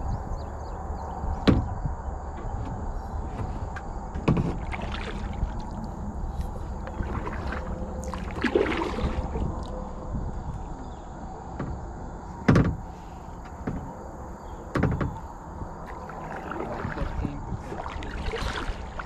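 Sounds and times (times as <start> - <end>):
sharp knocks: 1.4 - 1.8, 12.5 - 12.8
paddle splashing in water: 4.2 - 9.7, 15.8 - 19.0.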